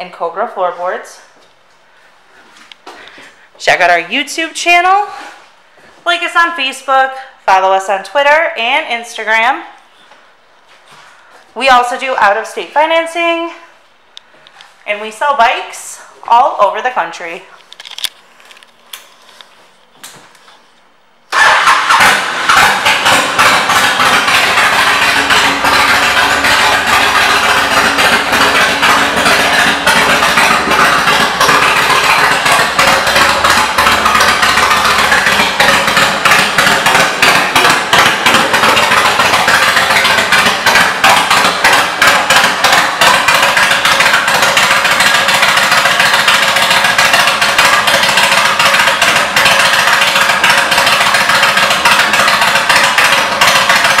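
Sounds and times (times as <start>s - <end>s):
motorcycle engine running: 21.3s - 54.0s.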